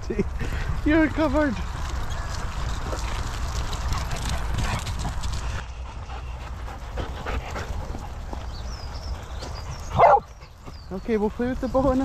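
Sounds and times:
dog panting and snuffling: 3.8 - 12.0.

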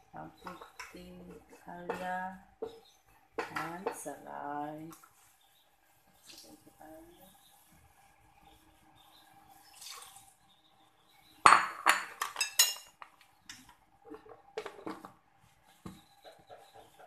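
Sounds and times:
kitchenware clinking: 11.4 - 15.1.

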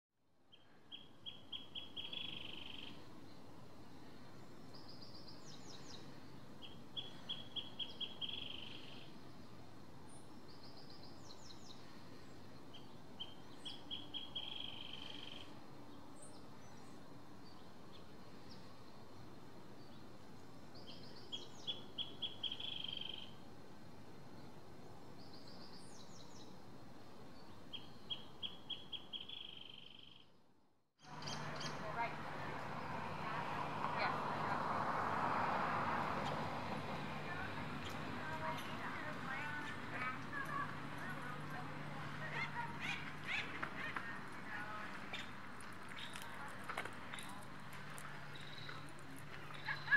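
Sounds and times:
low background hiss: 0.4 - 30.2
songbird singing with buzzy trill: 0.5 - 3.5, 4.4 - 9.2, 12.7 - 18.6, 20.7 - 23.4, 27.3 - 30.4.

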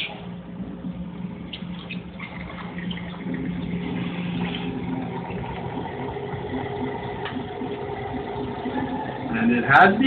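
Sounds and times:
aquarium equipment hum: 0.0 - 10.0
water pouring and splashing: 2.2 - 9.3.

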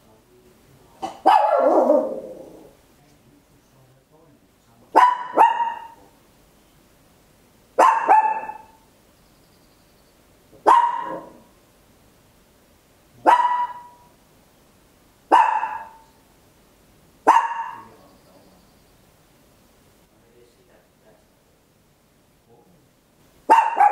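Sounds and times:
dog barking: 1.0 - 2.7, 4.9 - 6.1, 7.8 - 8.8, 10.6 - 11.5, 13.2 - 14.1, 15.3 - 16.2, 17.2 - 18.0, 23.5 - 23.9.

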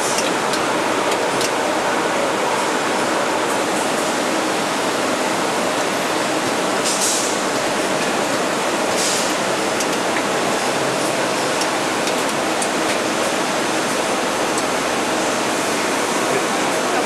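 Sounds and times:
factory machinery running: 0.0 - 17.0
brief hisses: 9.0 - 9.3.

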